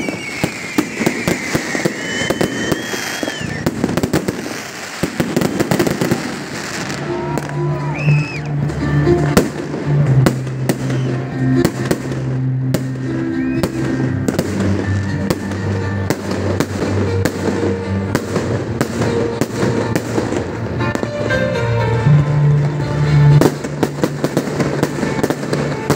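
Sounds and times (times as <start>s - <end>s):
fireworks bursting: 0.0s - 25.9s.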